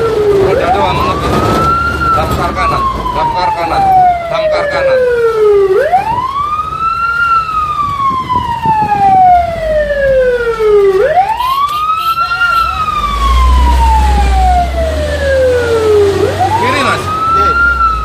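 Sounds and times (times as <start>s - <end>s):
fire truck siren wailing: 0.0s - 18.0s
truck engine rumbling: 0.0s - 18.0s.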